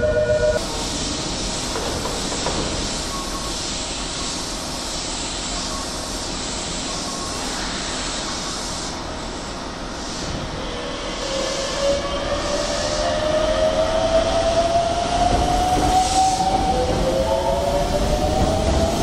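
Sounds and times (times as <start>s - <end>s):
train wheels rolling on rail: 0.6s - 3.7s, 8.7s - 19.0s.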